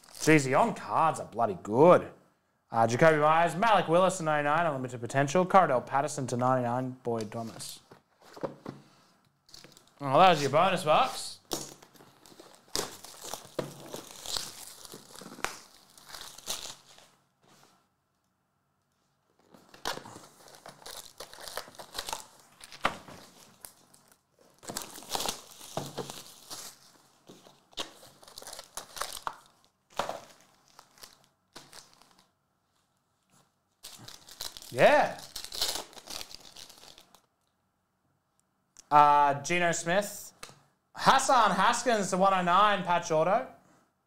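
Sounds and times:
packaging crinkling and tearing: 0.0 - 0.3, 9.5 - 10.0, 11.4 - 17.2, 19.4 - 32.3, 33.8 - 37.3.

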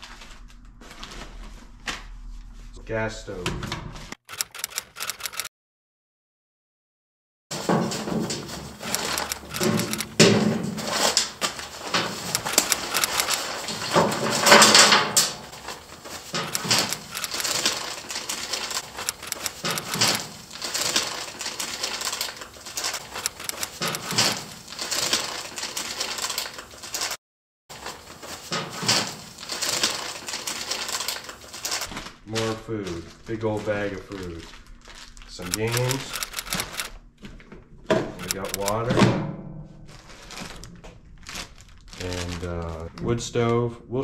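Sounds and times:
plastic bags crinkling: 7.6 - 36.8, 38.3 - 38.9, 39.9 - 43.5.

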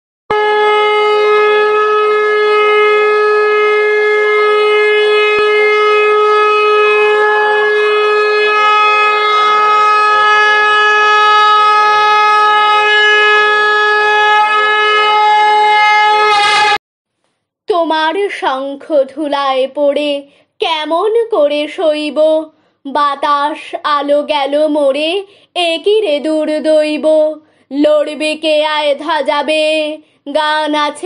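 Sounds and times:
conch shell blown: 0.3 - 16.8.

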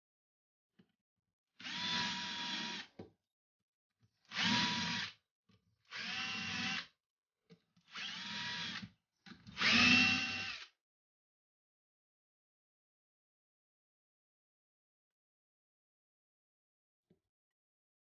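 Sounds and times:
drill whining boring into wood: 1.6 - 2.9, 4.3 - 5.2, 5.9 - 6.9, 7.9 - 8.9, 9.5 - 10.7.

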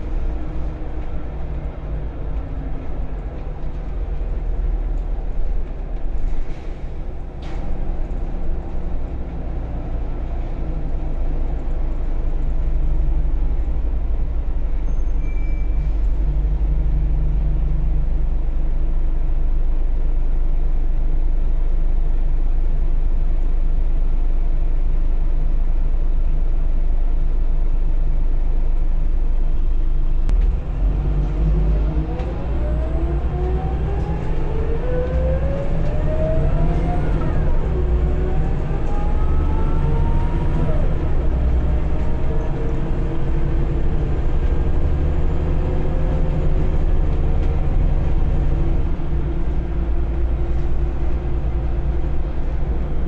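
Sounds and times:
bus engine and road rumble: 0.0 - 53.0
rising engine whine: 28.7 - 53.0.

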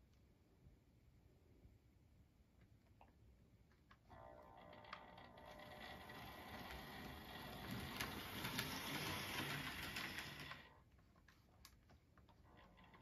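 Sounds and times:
model train motor whirring: 4.1 - 10.8
wheels clicking on track: 4.8 - 10.7.

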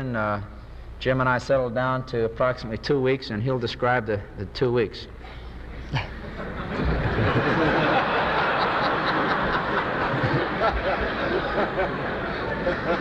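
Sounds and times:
audience laughter: 5.7 - 13.0.

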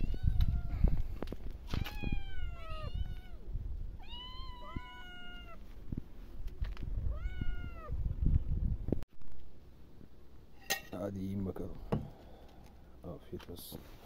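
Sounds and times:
kittens meowing: 1.7 - 5.6, 7.1 - 7.9.

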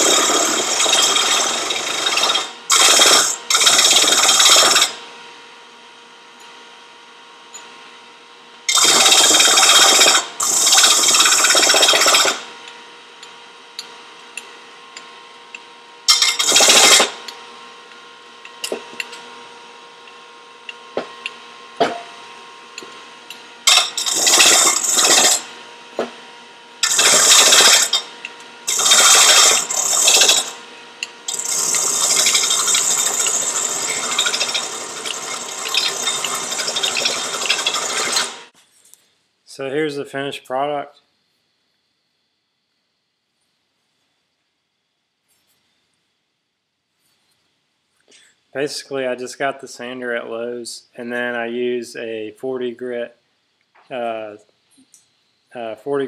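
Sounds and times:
disc sander grinding metal: 0.0 - 5.0, 16.1 - 17.2, 23.7 - 25.5, 26.8 - 30.6, 31.3 - 38.5
motor humming: 22.8 - 25.5, 26.8 - 38.5.

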